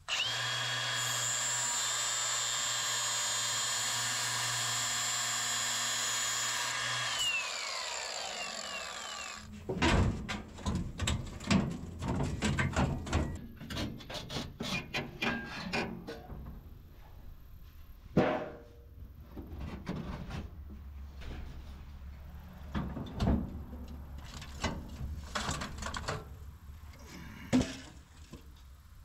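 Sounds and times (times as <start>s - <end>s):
power tool whining: 0.0s - 9.5s.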